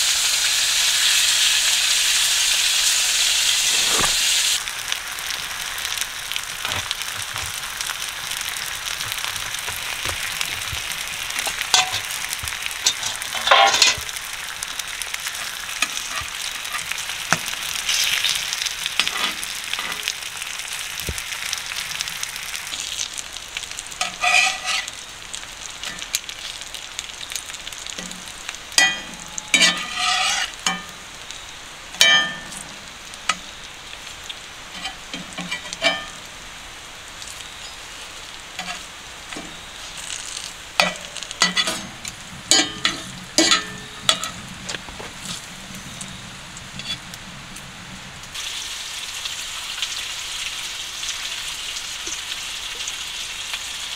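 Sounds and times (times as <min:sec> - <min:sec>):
bacon sizzling in a skillet: 0:00.0 - 0:53.9
metal spatula scraping a pan: 0:11.4 - 0:14.2, 0:15.3 - 0:18.3, 0:18.9 - 0:20.1, 0:24.0 - 0:25.0, 0:28.8 - 0:30.9, 0:34.7 - 0:36.2, 0:38.6 - 0:39.6, 0:40.8 - 0:44.4.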